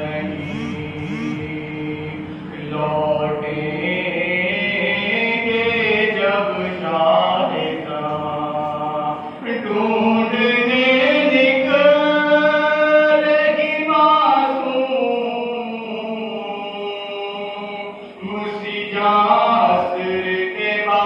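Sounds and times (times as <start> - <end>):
man chanting a lament: 0.0 - 21.0.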